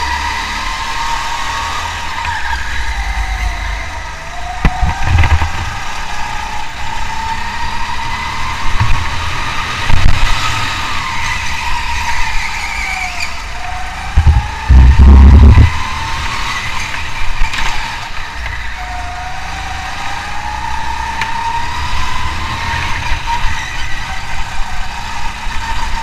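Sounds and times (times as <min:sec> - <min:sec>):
car engine running hard: 0:00.0 - 0:26.0
heavy low thumps: 0:14.2 - 0:15.7.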